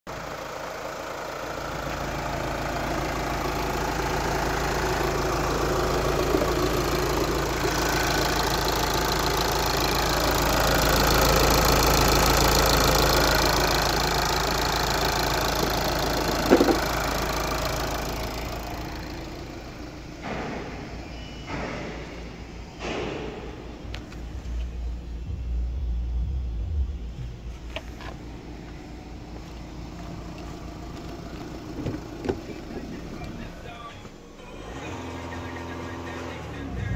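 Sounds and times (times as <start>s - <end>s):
diesel engine idling: 0.1s - 36.9s
short thump: 16.4s - 17.0s.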